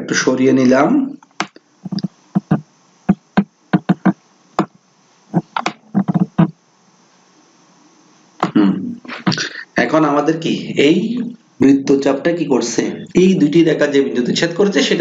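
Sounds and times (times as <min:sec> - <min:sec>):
faint hiss: 0:00.0 - 0:15.0
computer mouse clicking: 0:05.5 - 0:06.3.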